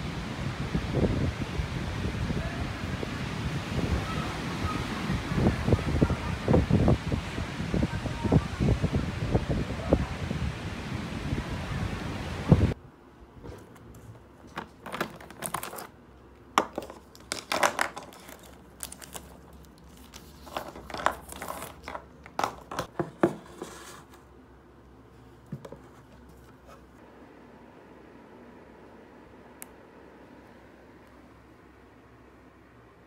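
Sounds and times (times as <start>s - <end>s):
wind on microphone: 0.0s - 12.8s
plastic and paper crinkling: 13.9s - 16.0s, 16.6s - 24.1s.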